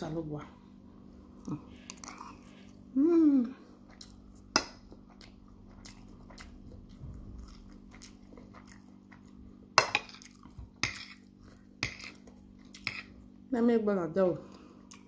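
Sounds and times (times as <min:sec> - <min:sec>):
quiet chewing: 0:01.3 - 0:02.9, 0:03.6 - 0:13.3, 0:14.5 - 0:15.0
person humming mmm: 0:02.9 - 0:03.7.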